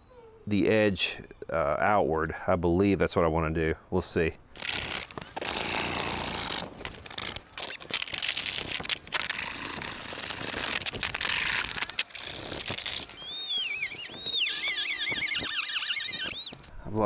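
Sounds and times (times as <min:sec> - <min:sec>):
high repeated chirps: 0:13.1 - 0:16.7.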